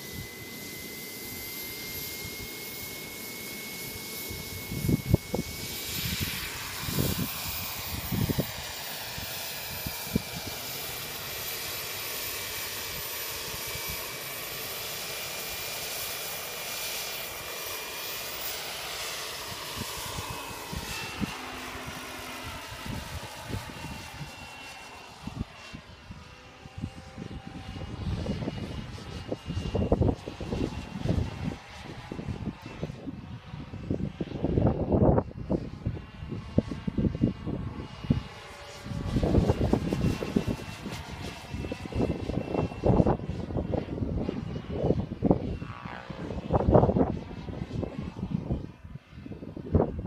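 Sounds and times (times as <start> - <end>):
model helicopter turbine whistle: 0.0 - 50.0.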